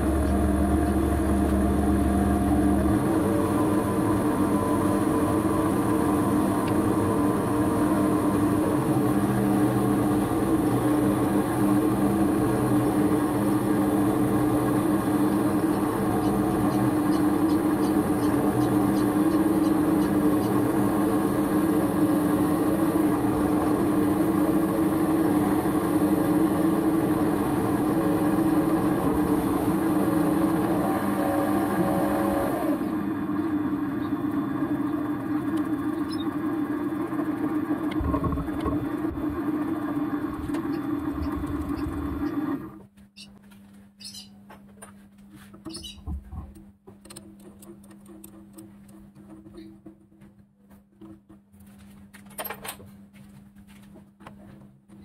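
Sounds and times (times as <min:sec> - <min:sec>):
lathe motor hum: 0:00.0 - 0:42.9.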